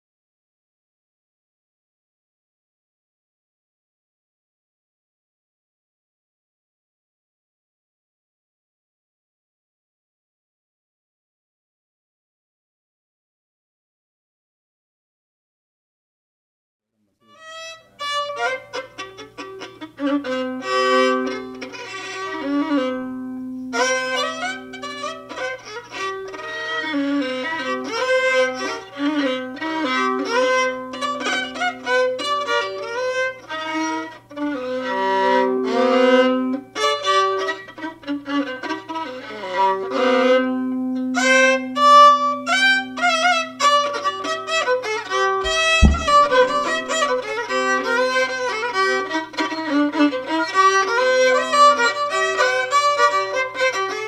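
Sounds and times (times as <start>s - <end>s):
fiddle playing a melody: 17.3s - 54.0s
low thump: 45.5s - 46.7s.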